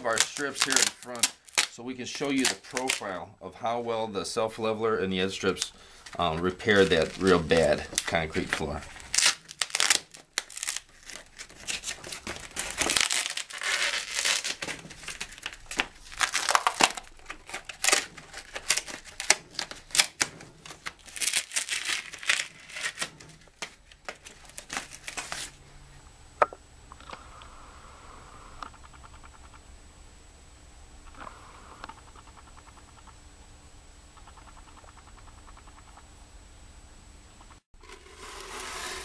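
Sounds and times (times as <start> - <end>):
foam strips tearing: 0.0 - 3.2, 5.4 - 25.6, 37.8 - 39.0
faint steady hum: 0.0 - 39.0.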